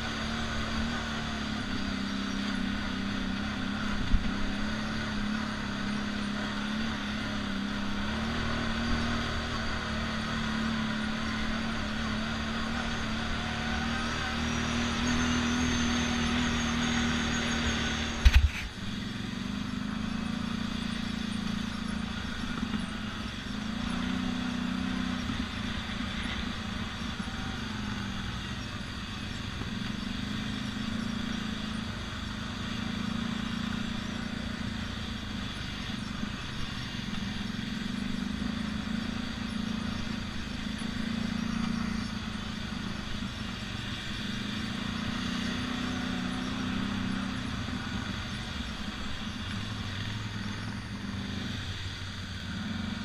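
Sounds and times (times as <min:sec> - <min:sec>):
atv engine running: 0:00.0 - 0:53.0
sharp click: 0:18.2 - 0:18.7.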